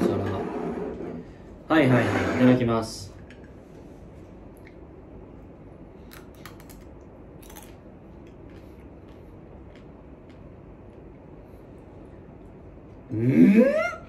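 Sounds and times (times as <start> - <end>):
faint sharp eating clicks: 6.1 - 11.3.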